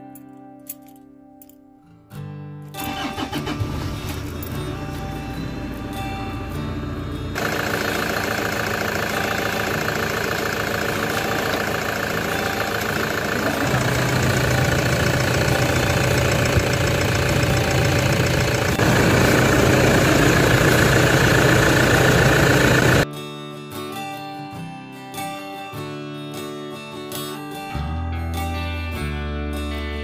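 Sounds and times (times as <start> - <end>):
diesel engine idling: 2.9 - 23.0.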